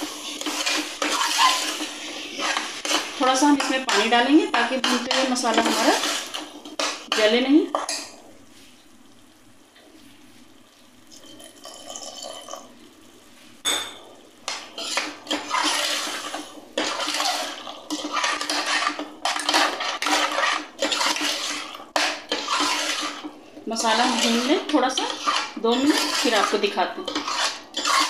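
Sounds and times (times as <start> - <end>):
metal spoon scraping a pot: 0.0 - 7.3, 14.5 - 28.0.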